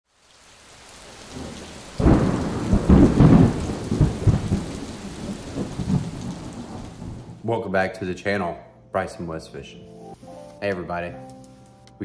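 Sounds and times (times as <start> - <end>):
rain: 0.0 - 7.4
thunder clap and rumbles: 1.3 - 7.4.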